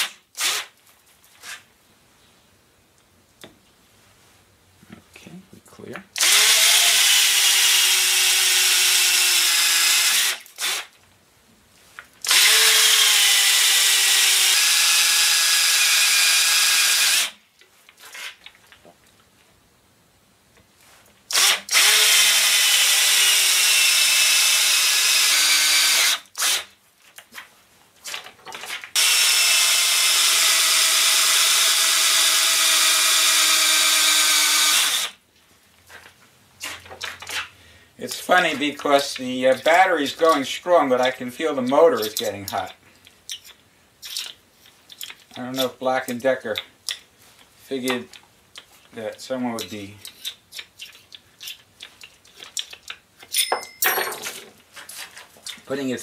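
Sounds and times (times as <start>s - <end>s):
cordless drill cutting with hole saw: 0.0s - 0.7s, 6.2s - 10.9s, 12.2s - 17.4s, 21.3s - 26.7s, 29.0s - 35.2s.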